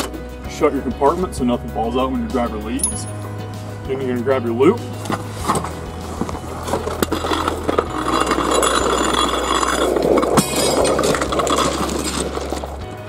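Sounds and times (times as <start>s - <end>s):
metal gear clinking and rattling: 2.8s - 3.2s, 5.0s - 13.0s.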